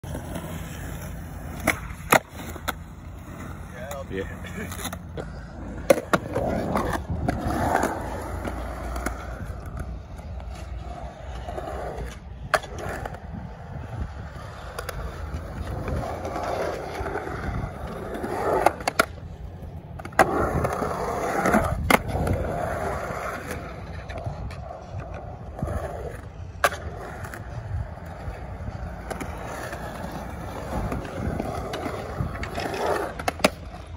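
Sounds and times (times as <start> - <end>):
skateboard wheels rolling on concrete: 0.0 - 33.9
skateboard clacks: 14.1 - 33.9.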